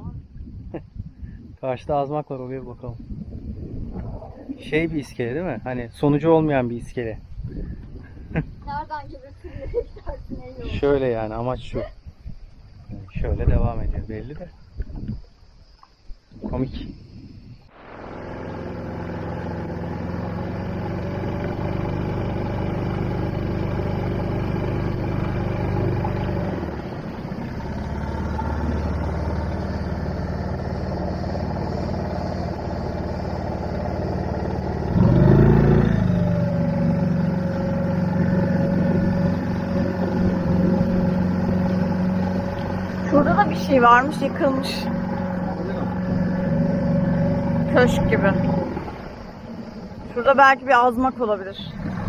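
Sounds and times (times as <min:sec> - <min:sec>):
outboard motor running: 0:17.7 - 0:52.0.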